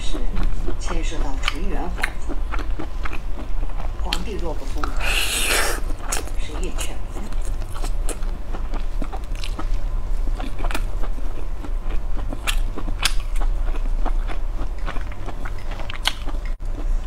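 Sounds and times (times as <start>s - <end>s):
chewing crispy meat: 0.0s - 17.0s
wet mouth clicks: 4.8s - 6.4s.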